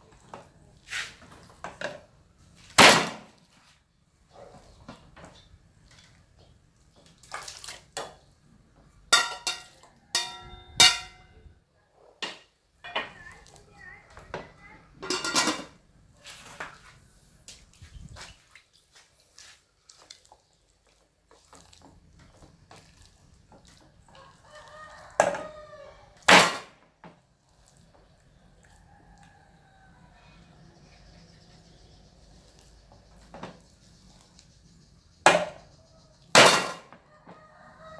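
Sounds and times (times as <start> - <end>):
dishes and utensils clattering: 9.1 - 11.3, 15.0 - 15.8, 36.3 - 37.0
rooster crowing: 24.1 - 26.2, 37.0 - 37.9.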